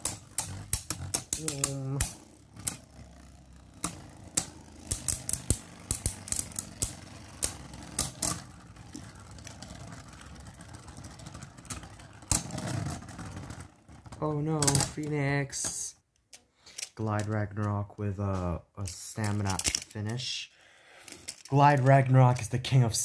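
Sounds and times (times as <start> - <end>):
spinning tops whirring: 0.0 - 15.3
spinning tops clacking together: 0.0 - 15.8, 18.9 - 20.3.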